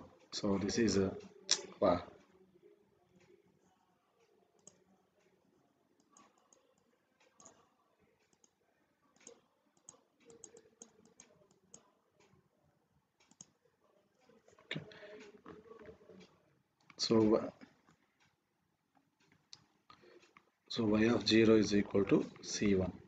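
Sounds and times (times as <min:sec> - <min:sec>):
computer mouse clicks: 0:04.6 - 0:04.8, 0:06.0 - 0:07.6, 0:08.2 - 0:08.6, 0:09.2 - 0:11.9, 0:13.2 - 0:13.6.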